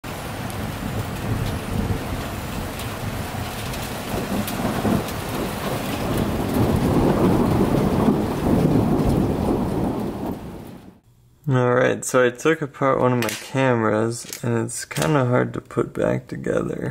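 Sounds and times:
rolling thunder: 0:00.0 - 0:11.0
steady rain: 0:00.0 - 0:11.0.

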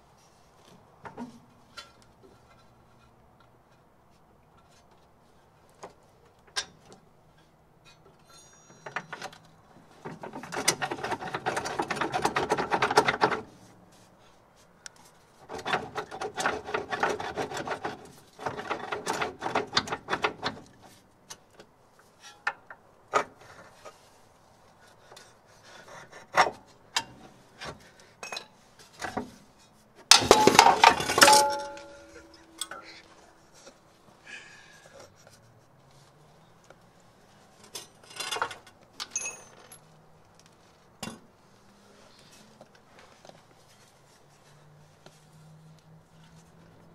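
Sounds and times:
ringing tone: 0:08.3 - 0:09.0
loud metal clatter: 0:30.1 - 0:32.5.

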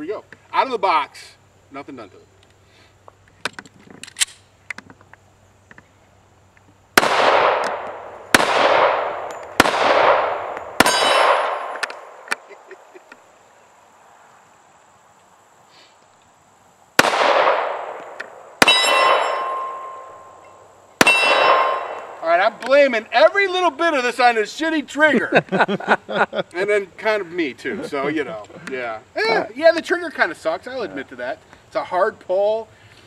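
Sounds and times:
pistol shots with echoing tail: 0:07.0 - 0:12.2, 0:17.0 - 0:20.3, 0:21.0 - 0:22.2.

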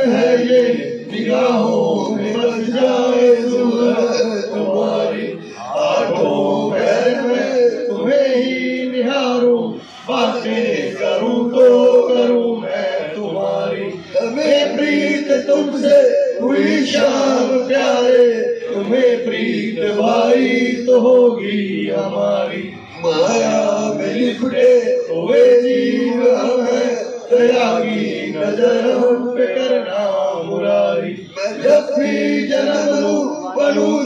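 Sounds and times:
men chanting a hymn in chorus: 0:00.0 - 0:34.0.

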